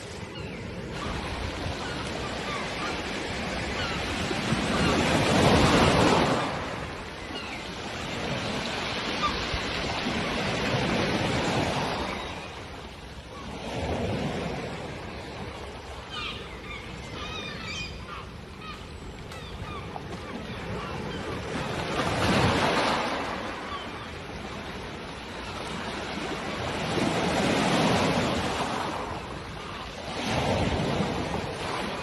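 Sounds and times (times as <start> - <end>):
gulls calling: 0.0 - 32.0
waves breaking on pebble beach: 0.8 - 7.0.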